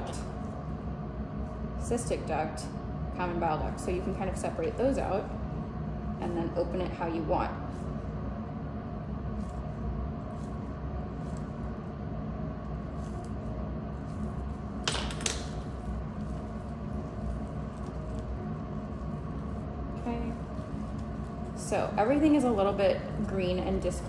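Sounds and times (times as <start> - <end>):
room noise hum: 0.0 - 24.0.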